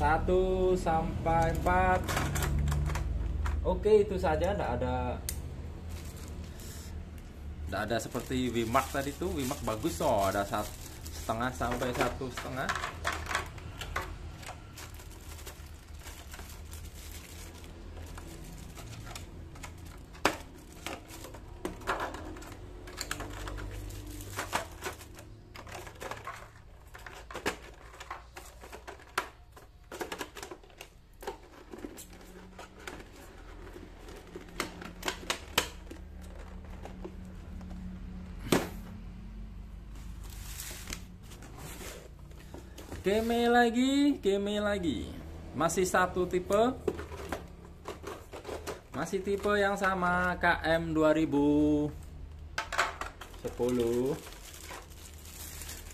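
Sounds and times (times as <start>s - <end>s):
plastic bags crinkling: 5.8s - 6.6s, 7.7s - 37.3s, 40.0s - 44.2s, 53.2s - 55.9s
cardboard carton rustling: 7.9s - 12.6s, 40.0s - 43.8s.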